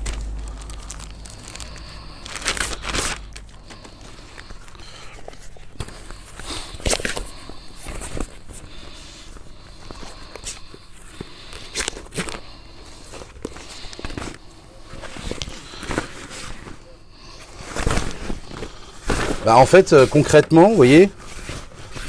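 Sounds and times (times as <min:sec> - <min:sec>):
plastic rustling and crinkling: 0:00.0 - 0:22.0.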